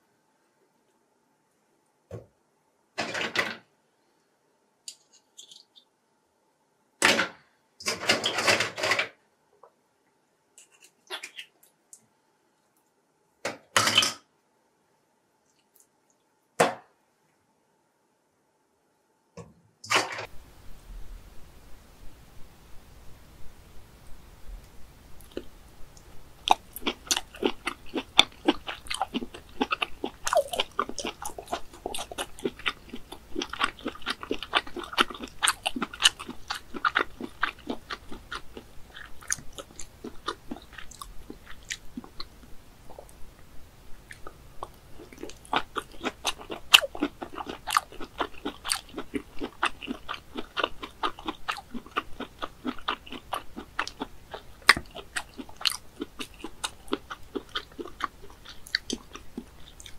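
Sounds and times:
chewing with clicking mouth sounds: 25.2s - 43.2s, 44.0s - 59.9s.

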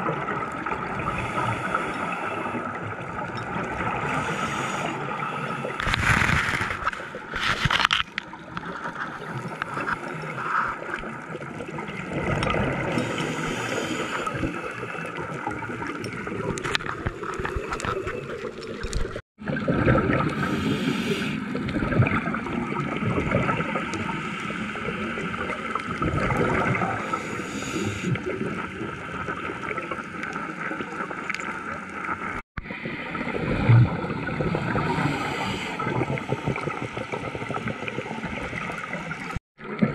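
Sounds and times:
bubbles gurgling and rushing: 0.0s - 39.9s
scuba regulator breathing: 4.0s - 7.0s, 12.9s - 15.2s, 20.4s - 21.4s, 27.0s - 28.2s, 34.8s - 36.5s.

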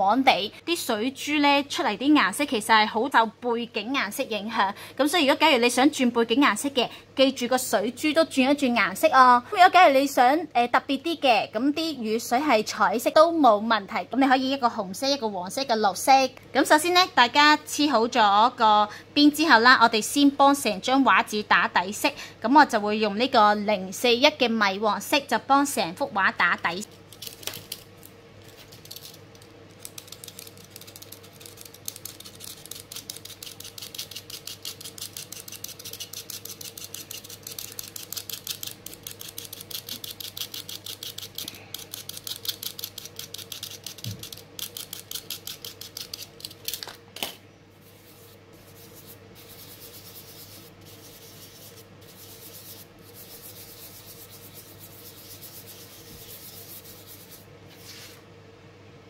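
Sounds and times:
fingertips rubbing on paper: 30.0s - 46.8s, 47.8s - 58.2s.

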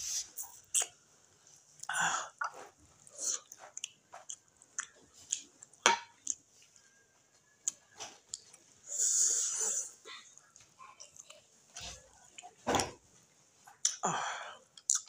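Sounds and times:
chewing and wet mouth smacks: 0.6s - 1.0s, 1.8s - 6.8s, 7.6s - 8.6s, 14.8s - 15.0s.

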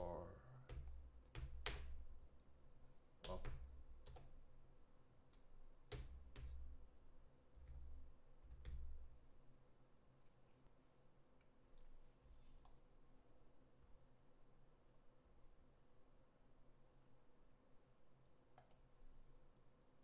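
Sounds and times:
keyboard keystrokes: 3.2s - 4.4s, 5.4s - 6.8s, 7.6s - 9.1s.

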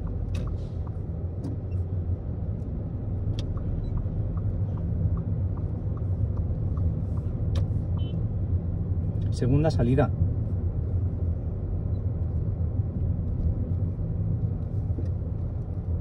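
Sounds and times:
car engine and tyres rumbling: 0.0s - 16.0s
faint regular ticking: 3.2s - 8.2s.

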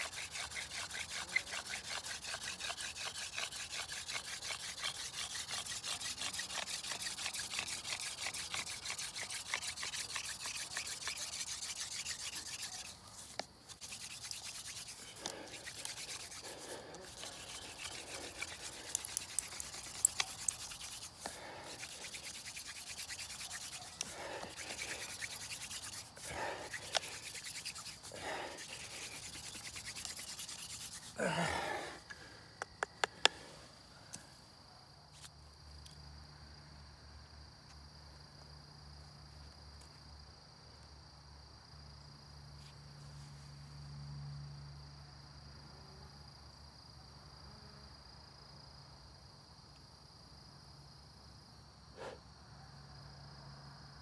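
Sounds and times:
hand drill rubbing wood: 0.0s - 31.9s
insect trill: 0.0s - 54.0s.

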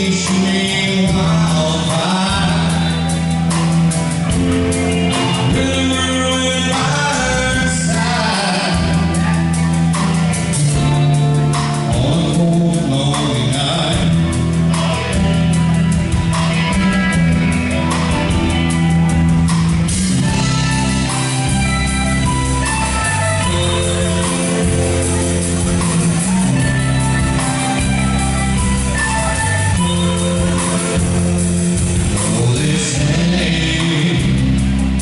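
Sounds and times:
man singing: 0.0s - 15.1s, 29.0s - 35.0s
country band playing: 0.0s - 35.0s.

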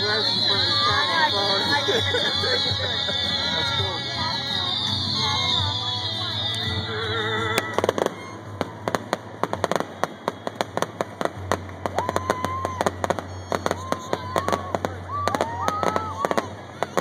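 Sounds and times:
fireworks bangs and crackles: 0.0s - 6.9s, 7.5s - 17.0s
high-pitched held tones: 0.0s - 8.4s.

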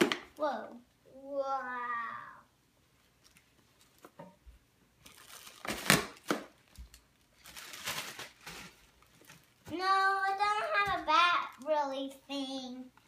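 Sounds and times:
plastic packaging crinkling: 5.0s - 9.7s.

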